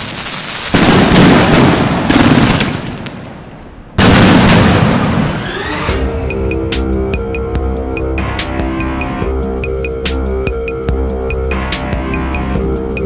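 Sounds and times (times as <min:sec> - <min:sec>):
fireworks hissing crackle: 0:00.0 - 0:03.4
fireworks loud report: 0:00.0 - 0:05.8.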